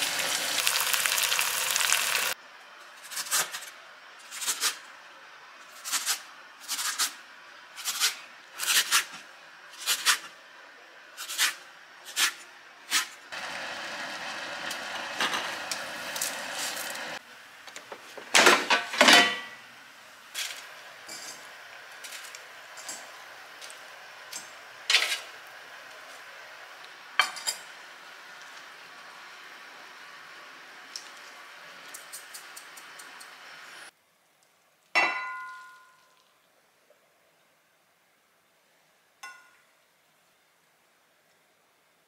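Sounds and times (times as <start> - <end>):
cookware clattering: 18.4 - 19.6, 35.0 - 36.0.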